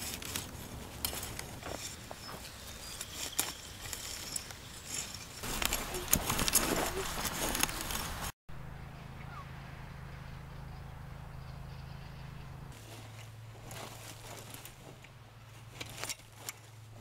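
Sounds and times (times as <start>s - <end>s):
clicks and scuffs of clods: 0.0s - 8.3s, 12.8s - 16.8s
hoe scraping and chopping soil: 0.0s - 8.3s, 12.7s - 17.0s.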